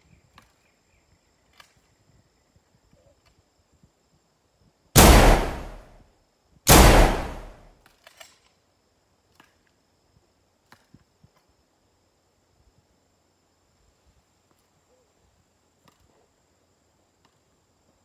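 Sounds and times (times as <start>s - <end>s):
rifle shots echoing: 5.0s - 5.9s, 6.7s - 7.7s.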